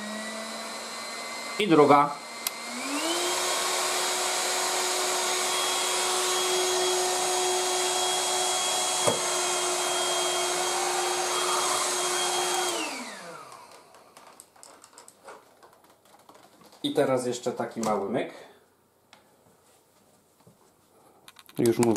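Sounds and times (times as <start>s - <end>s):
vacuum cleaner motor whine: 0.0s - 14.4s.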